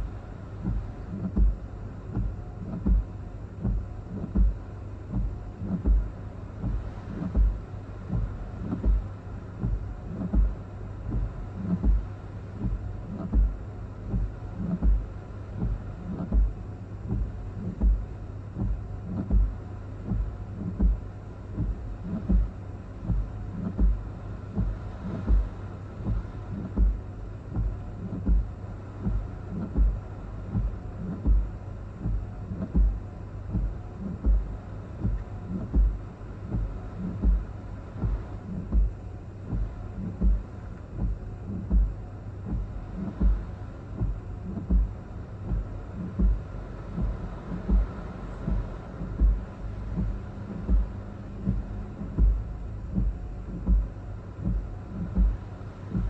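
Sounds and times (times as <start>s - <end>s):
steady low hum: 0.0s - 56.0s
windshield wipers thumping: 0.0s - 56.0s.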